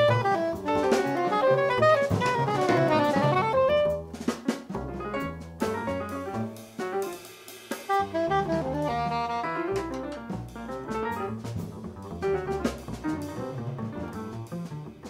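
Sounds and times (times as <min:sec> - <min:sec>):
soprano saxophone: 0:00.0 - 0:04.0, 0:07.9 - 0:10.2
plucked double bass: 0:00.0 - 0:06.5, 0:08.1 - 0:15.0
drum kit with cymbals: 0:00.0 - 0:15.0
piano: 0:00.0 - 0:15.0.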